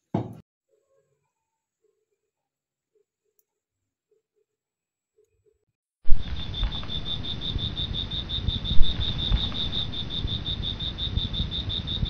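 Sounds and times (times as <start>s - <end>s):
thump: 0.1s - 0.4s
cricket chirping: 6.1s - 12.0s
low rumble: 6.1s - 12.0s.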